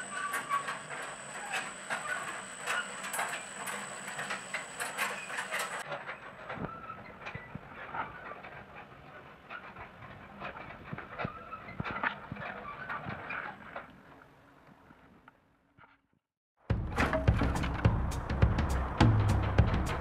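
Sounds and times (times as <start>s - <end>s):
thin high whine: 0.0s - 5.8s.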